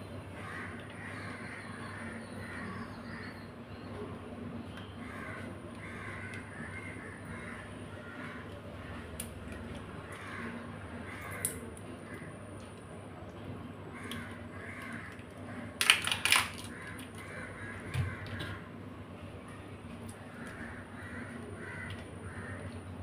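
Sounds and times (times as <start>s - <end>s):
crab shells snapping and cracking: 9.1s - 10.3s, 11.2s - 11.9s, 14.0s - 17.3s.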